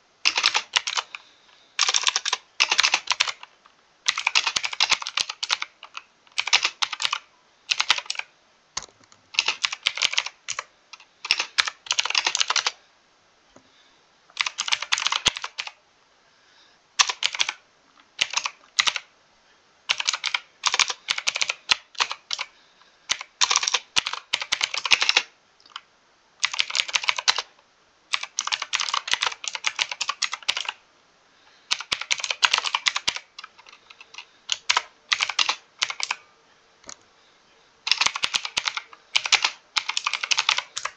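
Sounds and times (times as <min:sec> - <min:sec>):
mechanical keyboard typing: 0:00.2 - 0:01.2, 0:01.8 - 0:12.8, 0:14.3 - 0:15.8, 0:17.0 - 0:17.6, 0:18.2 - 0:19.1, 0:19.9 - 0:22.5, 0:23.1 - 0:25.8, 0:26.4 - 0:27.5, 0:28.1 - 0:30.8, 0:31.7 - 0:36.2, 0:37.9 - 0:40.9.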